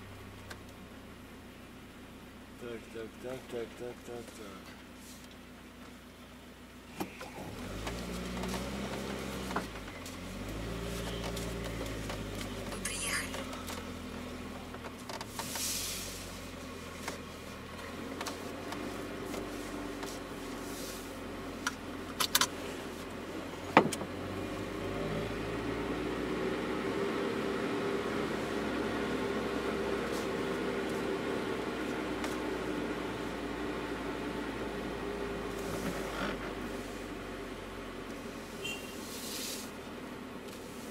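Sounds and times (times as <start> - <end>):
truck engine pulling away: 7.0 - 38.1.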